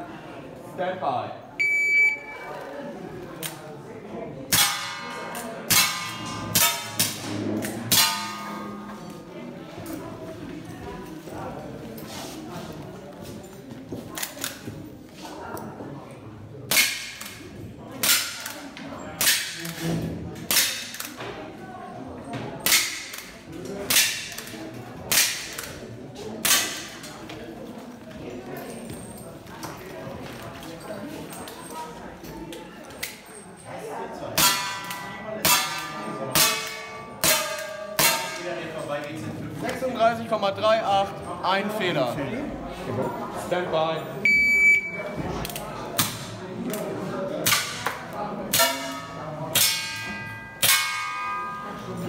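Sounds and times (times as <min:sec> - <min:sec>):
steel plate target ringing: 0:07.9 - 0:08.9, 0:48.6 - 0:51.9.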